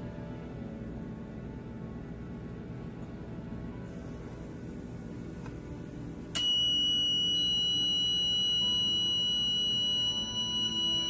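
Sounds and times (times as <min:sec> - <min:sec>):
high-pitched continuous buzzer tone: 0:05.9 - 0:11.0.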